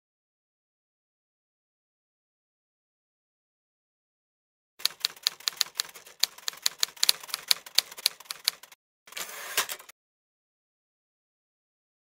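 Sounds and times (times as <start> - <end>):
typewriter-like key clacking: 4.8 - 9.9.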